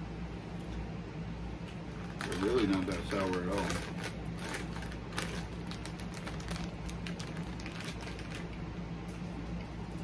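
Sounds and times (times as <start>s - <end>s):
steady low hum: 0.0s - 10.0s
plastic bag crinkling: 1.9s - 8.7s.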